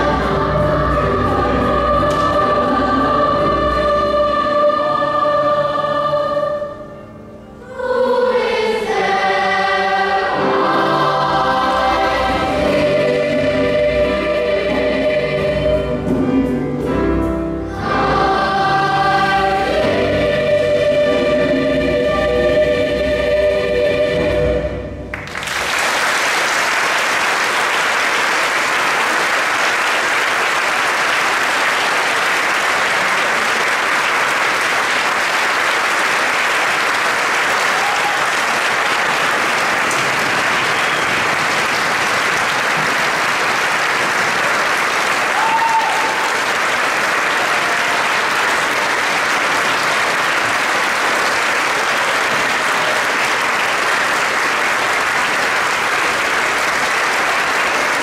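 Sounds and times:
choir singing: 0.0s - 25.1s
audience applauding: 25.1s - 58.0s.

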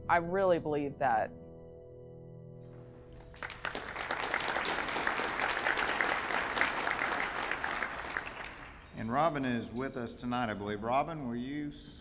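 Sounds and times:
audience applauding: 3.2s - 8.9s.

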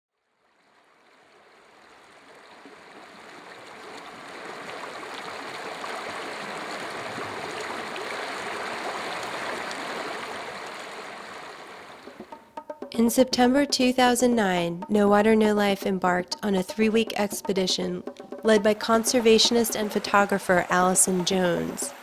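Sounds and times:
river running over rocks: 0.7s - 12.1s.

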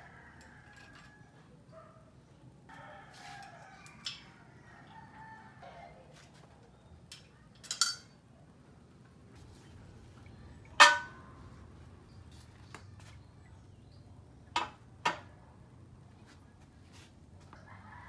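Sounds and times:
rooster crowing: 2.7s - 6.1s
metal parts clinking and clanking: 7.1s - 8.2s.

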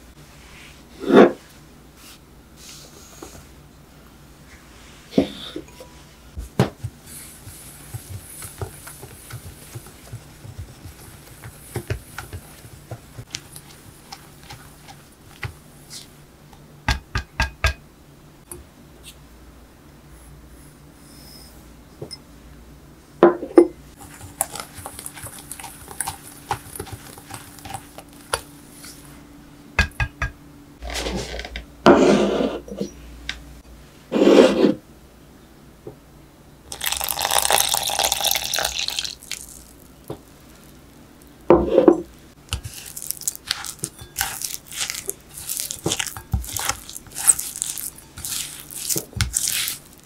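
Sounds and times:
stirring scraping hiss: 4.5s - 16.2s, 23.9s - 29.2s, 41.7s - 50.0s.

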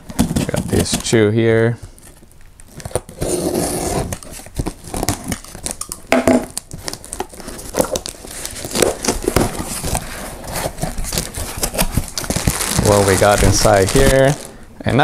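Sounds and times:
packing tape ripping: 2.6s - 14.6s
box cutter slitting tape: 2.7s - 14.4s.

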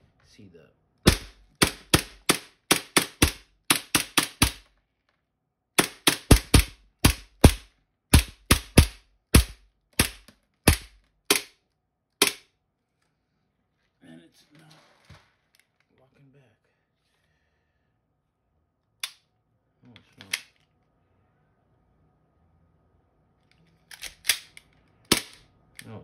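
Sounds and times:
airsoft pistol shots: 1.0s - 4.6s, 5.8s - 11.5s, 12.2s - 12.4s, 25.1s - 25.4s.

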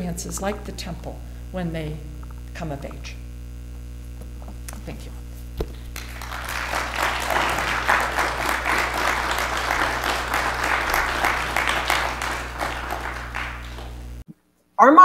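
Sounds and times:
audience applauding: 5.8s - 14.2s.

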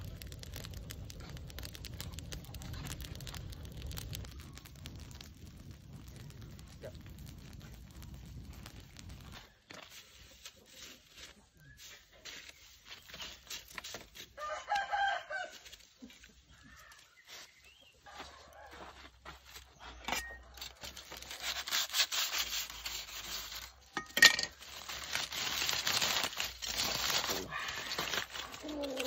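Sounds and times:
aluminium foil crinkling: 0.0s - 17.6s, 18.6s - 29.0s
rooster crowing: 14.4s - 15.7s.

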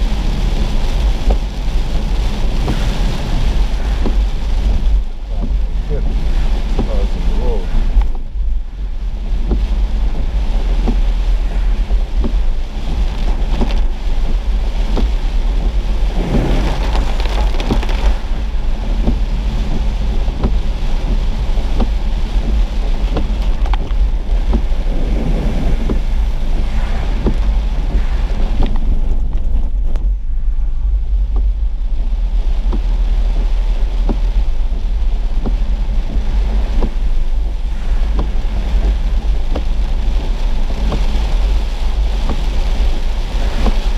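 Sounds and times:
car road and wind rumble: 0.0s - 43.9s
raindrops ticking on windshield: 0.0s - 43.9s
rushing swells: 15.3s - 18.8s, 23.5s - 32.6s.

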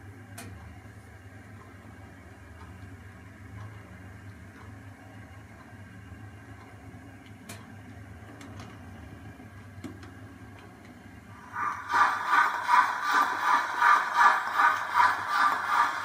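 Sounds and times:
model train humming on track: 11.2s - 16.0s.

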